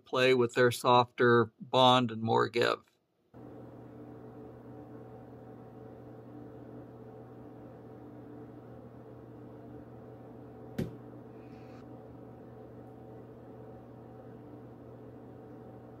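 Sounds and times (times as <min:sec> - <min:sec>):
steady background hum: 0:03.4 - 0:16.0.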